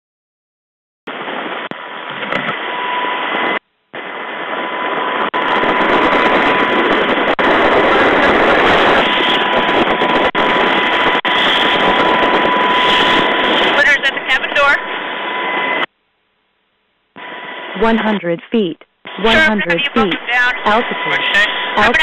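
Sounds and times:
thin steady whine: 0:01.1 - 0:22.0
helicopter roar over intercom: 0:04.3 - 0:15.9, 0:17.2 - 0:18.5, 0:19.1 - 0:22.0.

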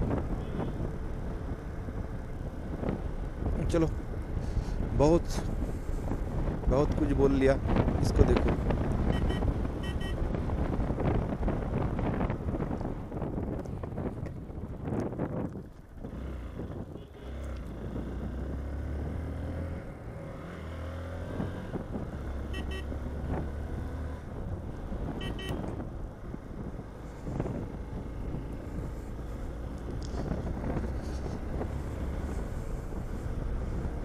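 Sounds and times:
motorcycle engine rumble: 0:00.0 - 0:34.0
wind noise: 0:00.0 - 0:34.0
short high beeps: 0:09.1 - 0:10.2.

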